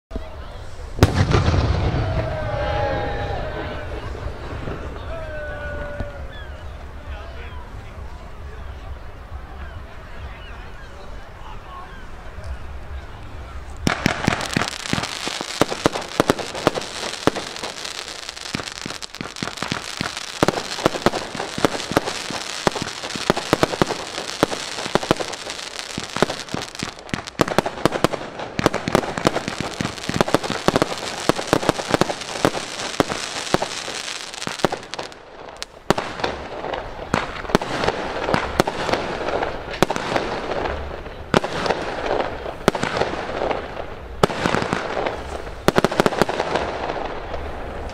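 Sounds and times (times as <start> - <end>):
fireworks launching and bursting: 0.7 - 3.2, 12.7 - 47.9.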